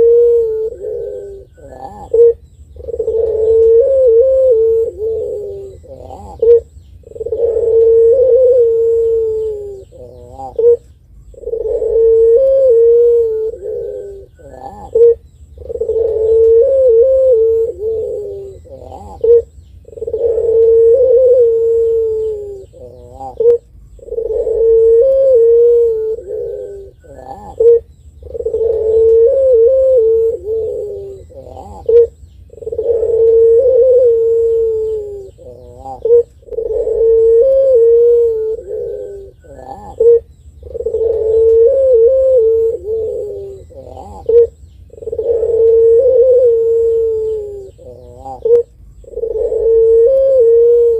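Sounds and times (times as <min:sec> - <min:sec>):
dove cooing: 0:00.0 - 0:50.9.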